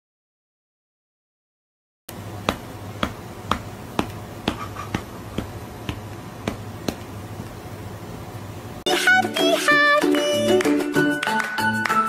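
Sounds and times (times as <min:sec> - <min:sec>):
low steady hum: 0:02.1 - 0:08.8.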